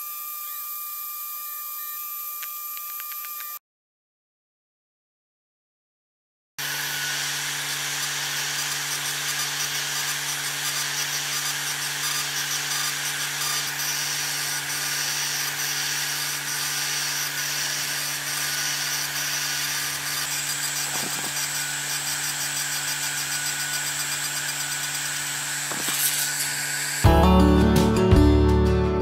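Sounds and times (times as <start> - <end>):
stepper motors driving head: 1.4 - 3.6, 7.7 - 27.1.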